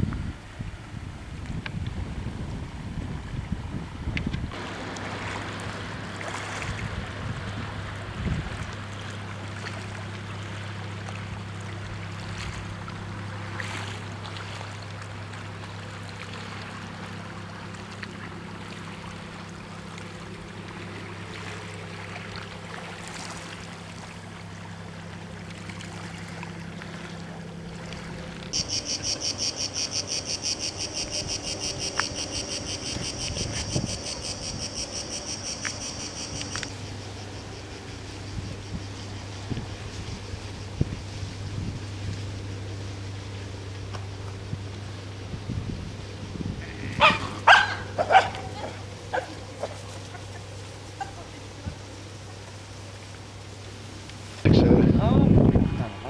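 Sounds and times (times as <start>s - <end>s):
steady low hum: 0.0s - 56.0s
cicadas buzzing: 4.5s - 54.5s
faint outdoor noise: 4.5s - 56.0s.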